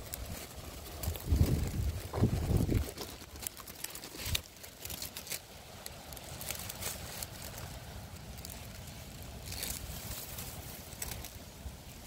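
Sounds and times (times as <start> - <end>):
wind rumble on microphone: 0.0 - 3.4
dry grass rustling: 0.0 - 12.0.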